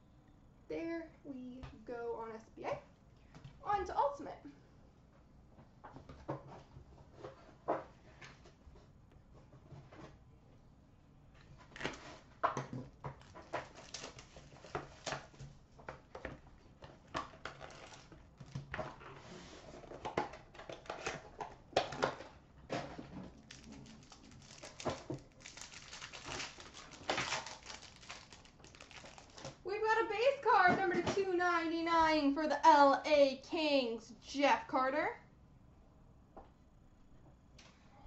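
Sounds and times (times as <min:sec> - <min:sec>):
wrapper crinkling: 0:13.2 - 0:15.4, 0:17.2 - 0:18.6, 0:23.3 - 0:29.7.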